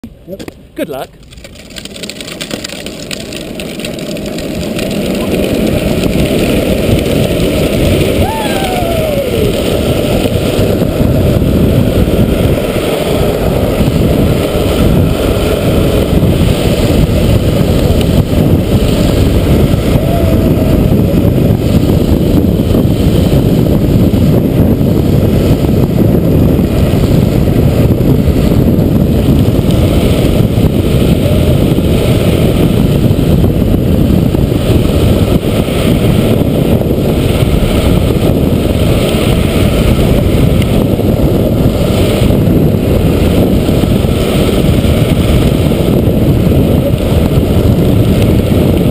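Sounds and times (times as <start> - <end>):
plastic wheels rolling on asphalt: 0.2 - 48.9.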